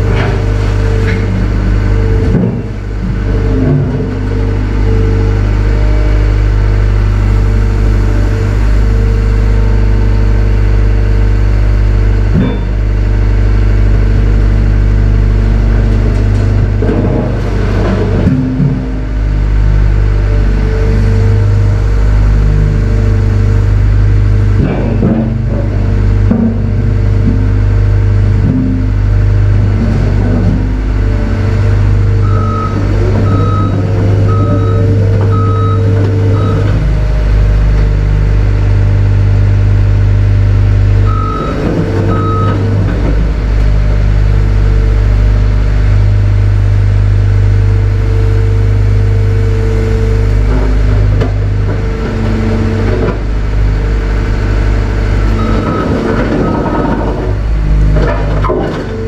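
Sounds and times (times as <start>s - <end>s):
diesel truck engine running: 0.0s - 59.0s
backup alarm beeping: 32.2s - 36.8s, 41.0s - 42.8s, 55.3s - 56.8s.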